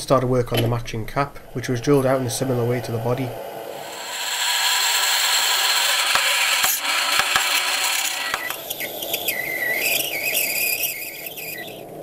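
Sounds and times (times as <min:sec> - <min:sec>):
drill cutting steel on lathe: 0:03.7 - 0:08.7
high squeal of cutting tool: 0:03.8 - 0:11.8.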